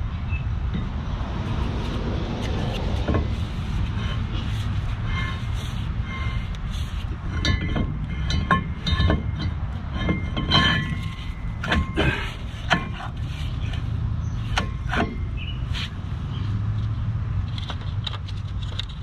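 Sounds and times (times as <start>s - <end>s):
steady low rumble: 0.0s - 17.7s
metal clanks and clinks: 2.4s - 16.0s.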